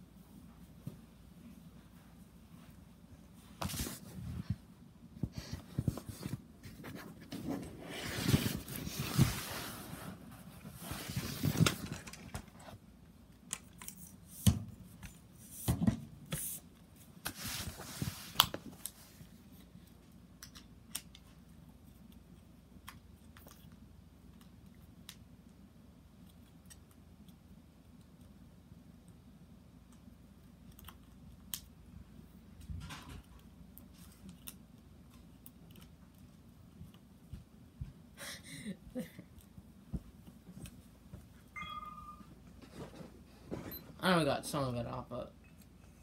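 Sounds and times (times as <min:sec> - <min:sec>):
rustling and scraping: 0:00.3 - 0:12.8, 0:15.0 - 0:19.8, 0:42.2 - 0:44.0.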